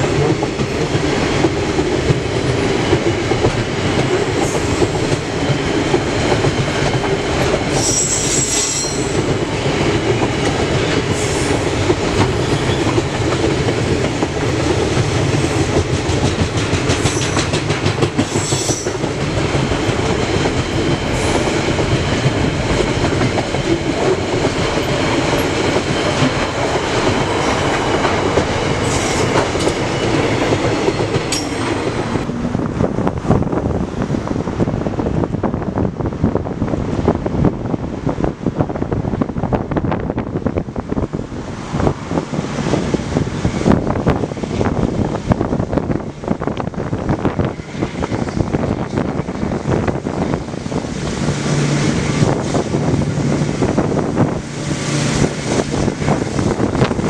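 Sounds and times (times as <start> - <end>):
freight train wheels rumbling on rail: 0.0 - 57.0
rail joint clickety-clack: 0.0 - 57.0
high-pitched wheel squeals: 7.8 - 9.2.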